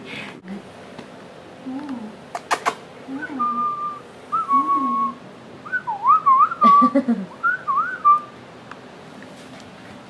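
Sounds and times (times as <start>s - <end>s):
person whistling: 3.2s - 8.3s.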